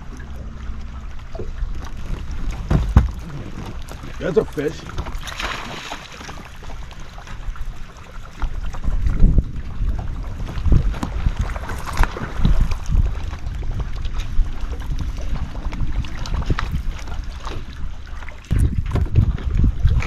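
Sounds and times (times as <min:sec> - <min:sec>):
wind rumbling on microphone: 0:00.0 - 0:20.0.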